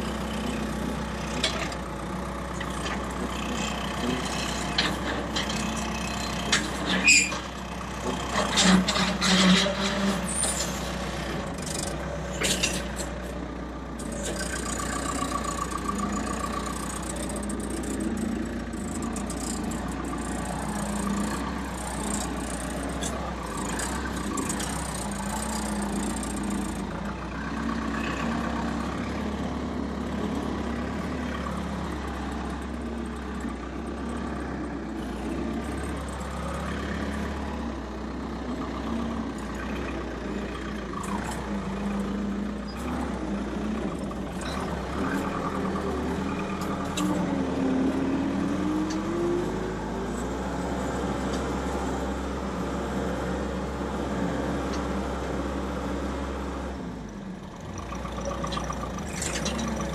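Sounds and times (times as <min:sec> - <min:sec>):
loader engine running: 0:00.0 - 0:59.9
metal clanks and rattles: 0:12.3 - 0:13.3.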